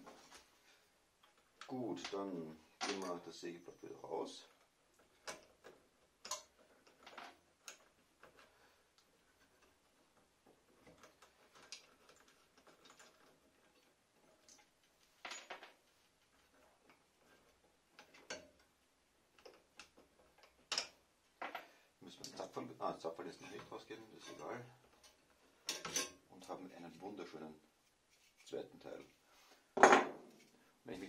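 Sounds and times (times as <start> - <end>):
small metallic clicks and taps: 4.5 - 15.6.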